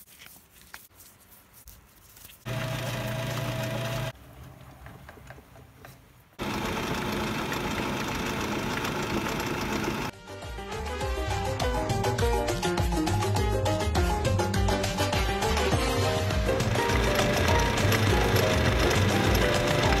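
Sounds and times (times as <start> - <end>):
lathe motor humming: 2.5 - 4.1, 6.4 - 10.1, 16.6 - 20.0.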